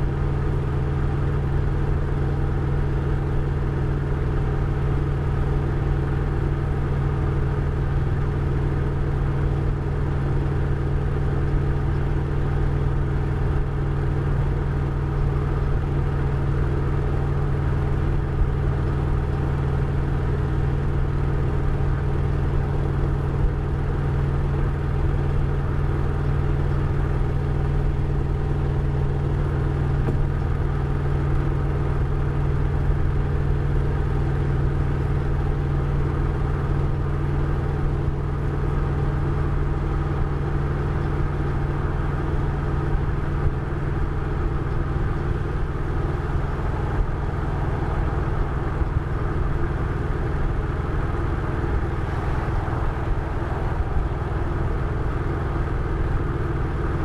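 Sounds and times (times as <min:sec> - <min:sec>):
motorcycle engine running steadily: 0:00.0 - 0:57.0
road and wind noise: 0:00.0 - 0:57.0.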